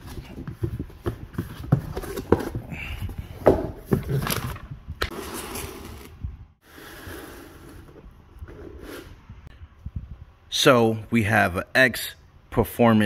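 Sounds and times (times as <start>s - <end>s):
box knocking on concrete floor: 3.4s - 4.4s.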